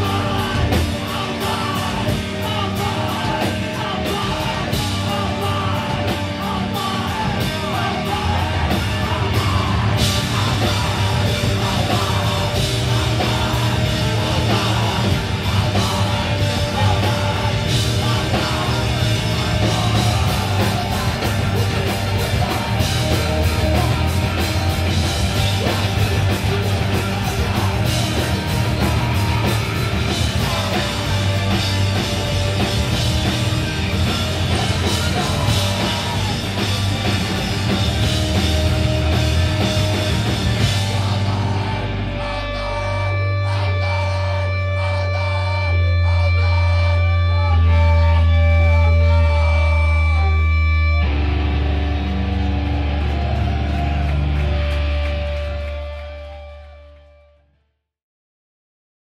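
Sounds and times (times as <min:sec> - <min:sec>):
drum kit with rapid cymbals: 0:00.0 - 0:46.6
distorted electric guitar: 0:00.0 - 0:57.5
bass guitar: 0:00.0 - 0:57.6.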